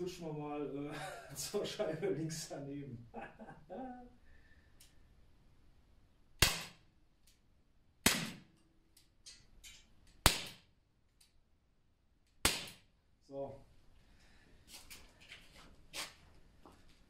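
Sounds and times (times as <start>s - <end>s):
pistol shots: 6.4s - 6.8s, 8.0s - 8.5s, 12.4s - 12.8s.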